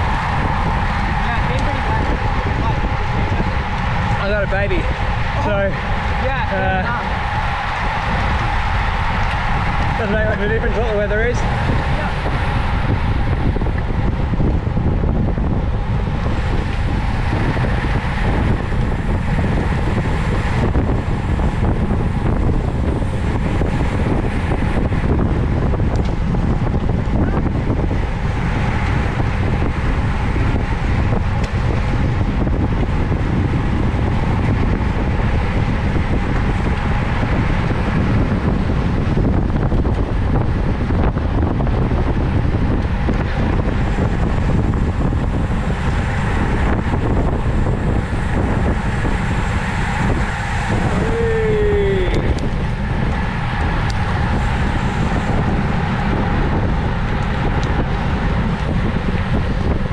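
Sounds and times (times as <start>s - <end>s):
wind noise on microphone: 0.0s - 59.9s.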